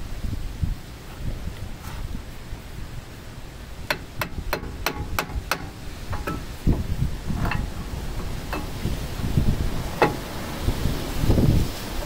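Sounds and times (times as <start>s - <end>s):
sharp metallic clicks: 3.9s - 9.0s
metal tools clinking: 7.3s - 9.0s.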